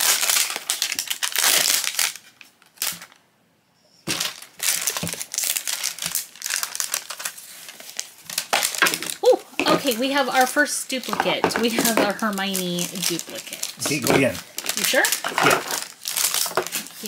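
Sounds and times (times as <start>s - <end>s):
plastic wrapper crinkling: 0.0s - 3.2s, 4.1s - 17.0s.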